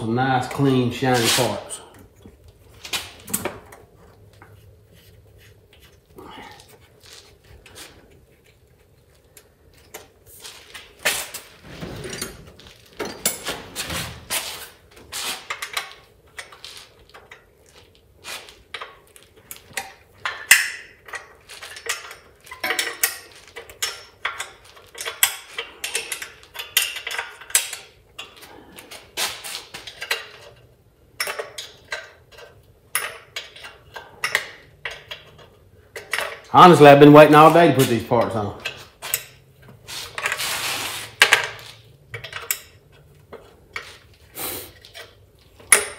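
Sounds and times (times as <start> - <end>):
metal clinks and knocks: 10.7 - 14.4, 18.7 - 29.0, 44.8 - 45.9.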